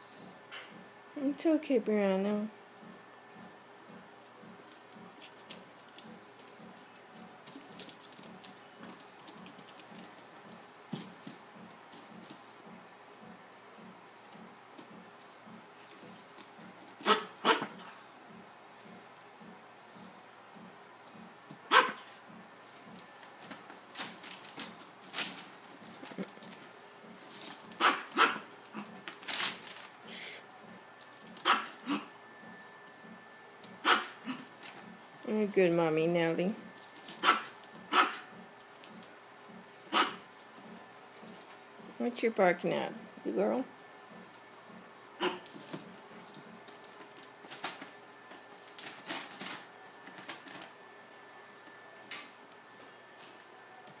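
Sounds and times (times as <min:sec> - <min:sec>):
faint steady hum: 0:00.0 - 0:54.0
small dog barking: 0:17.0 - 0:17.8, 0:21.7 - 0:22.1, 0:27.8 - 0:28.9, 0:31.4 - 0:32.1, 0:33.8 - 0:34.4, 0:37.2 - 0:38.3, 0:39.9 - 0:40.2, 0:45.2 - 0:45.4.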